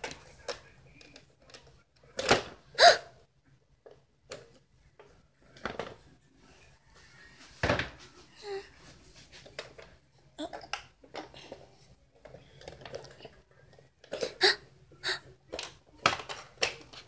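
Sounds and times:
plastic toys knocking and clattering: 0:00.0 - 0:02.6, 0:03.8 - 0:06.1, 0:10.5 - 0:14.6, 0:15.4 - 0:17.0.

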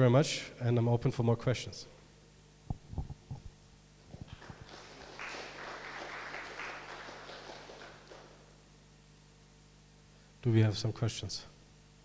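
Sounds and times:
low thumps: 0:02.7 - 0:04.4
audience applauding: 0:04.2 - 0:08.5.

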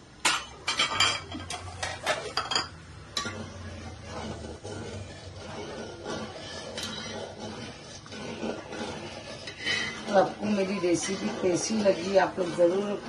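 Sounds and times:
metal utensils clinking on metal: 0:00.2 - 0:03.5
stirring curry in a pot: 0:00.5 - 0:13.0.

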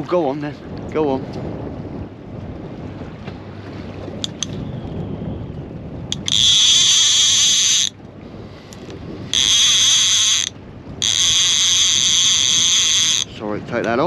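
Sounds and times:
water noise: 0:00.0 - 0:14.0
wind: 0:00.0 - 0:14.0
fishing reel ratchet buzzing: 0:06.1 - 0:08.0, 0:08.7 - 0:13.3.

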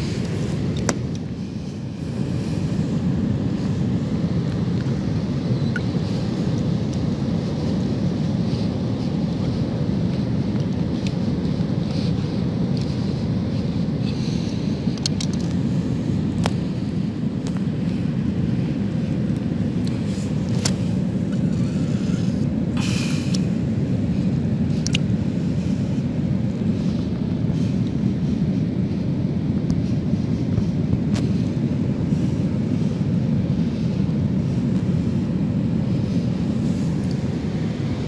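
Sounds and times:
wind and surf: 0:00.0 - 0:38.0
sharp clicks among rocks: 0:15.0 - 0:15.6.

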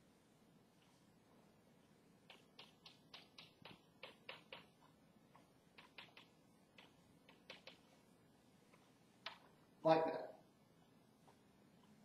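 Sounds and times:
chalk tapping on blackboard: 0:02.2 - 0:08.0.

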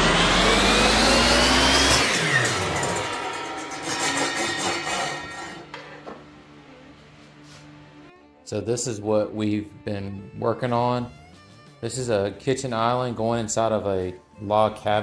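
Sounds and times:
table saw motor winding down: 0:00.0 - 0:06.3.

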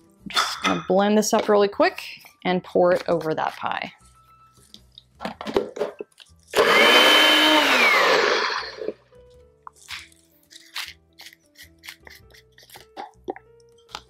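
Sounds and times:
blender running: 0:06.6 - 0:09.0.

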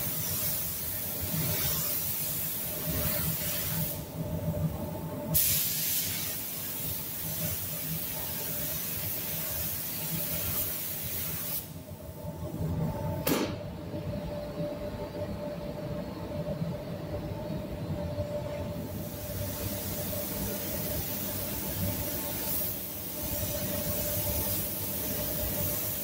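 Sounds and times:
spray gun hissing: 0:00.0 - 0:04.0, 0:05.4 - 0:11.8, 0:18.9 - 0:26.0
steady hum: 0:06.3 - 0:26.0.

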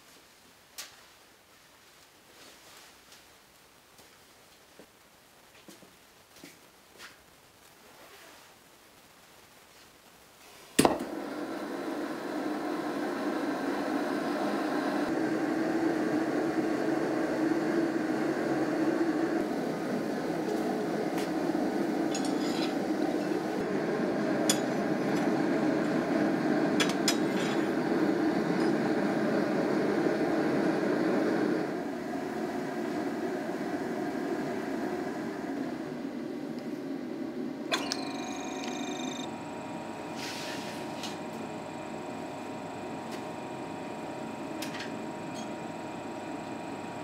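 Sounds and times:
gas forge lighting pop: 0:10.8 - 0:11.1
forge burner rushing: 0:10.8 - 0:47.0.

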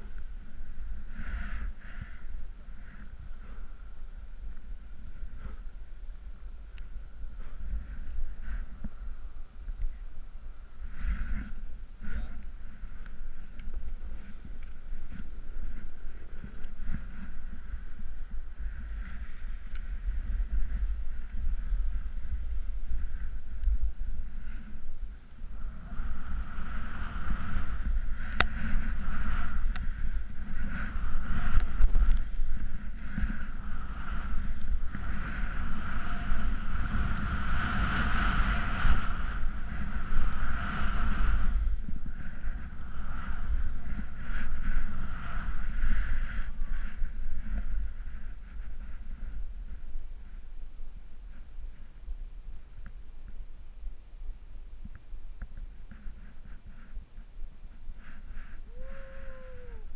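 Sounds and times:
wind buffeting microphone: 0:00.0 - 0:52.7
snowboard scraping over snow: 0:10.8 - 0:50.2.

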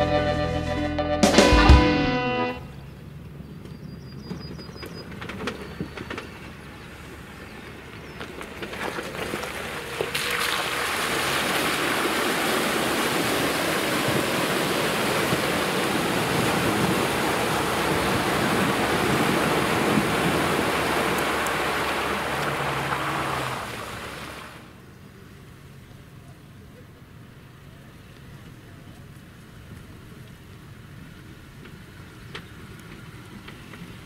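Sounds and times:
water splashing around vehicle: 0:02.8 - 0:34.0.

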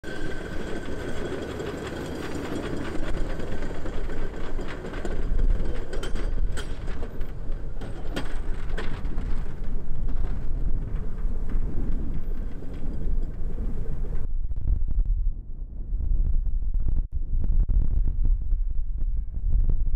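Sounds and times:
truck rolling on rails: 0:00.0 - 0:14.3.

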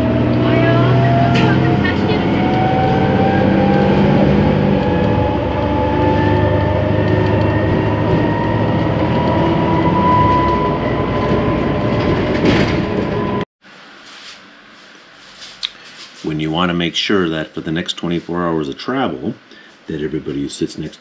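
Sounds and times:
bus engine and road noise: 0:00.0 - 0:13.5
rising engine whine: 0:00.0 - 0:13.5.

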